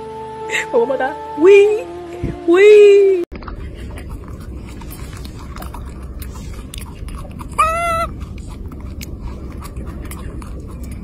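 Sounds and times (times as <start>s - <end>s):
baby monkey squeak: 7.6s - 8.1s.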